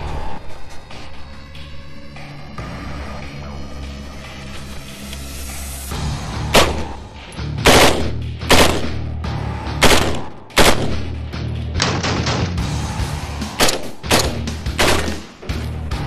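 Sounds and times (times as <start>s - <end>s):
background music: 0.0s - 16.0s
rifle shots: 6.5s - 7.0s, 7.6s - 9.1s, 9.8s - 11.2s, 13.6s - 15.3s.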